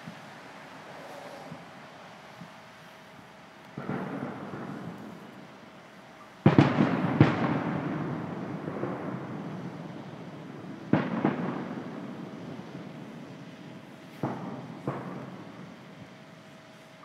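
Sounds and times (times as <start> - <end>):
firework booms: 3.7 - 5.7, 6.4 - 16.2.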